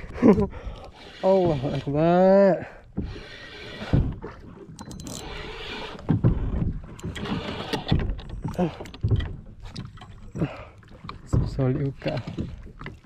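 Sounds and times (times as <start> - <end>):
fishing reel cranking: 0.8 - 2.4, 3.0 - 4.0, 4.8 - 6.0, 7.0 - 8.0.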